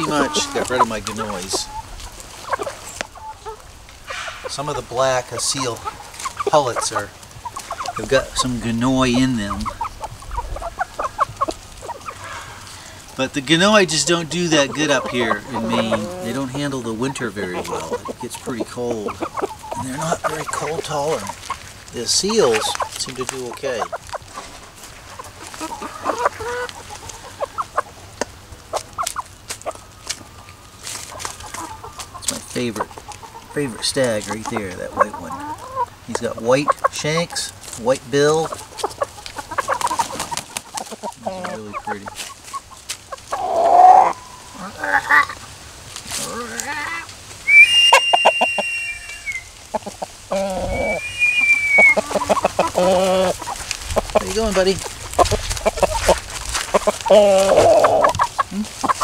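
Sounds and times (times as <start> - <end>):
high thin chick calls: 0.0 - 21.6, 46.2 - 59.0
chickens clucking: 0.0 - 59.0.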